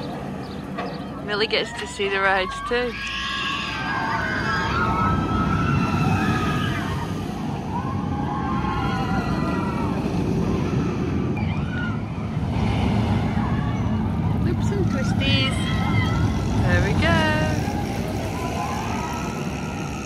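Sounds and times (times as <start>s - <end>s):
roller coaster wheels rumbling on rails: 0.0s - 20.0s
riders screaming: 2.0s - 12.1s, 15.4s - 20.0s.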